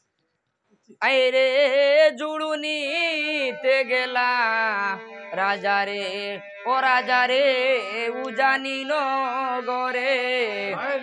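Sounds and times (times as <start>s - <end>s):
man singing folk song: 1.0s - 11.0s
harmonium accompaniment: 2.6s - 11.0s.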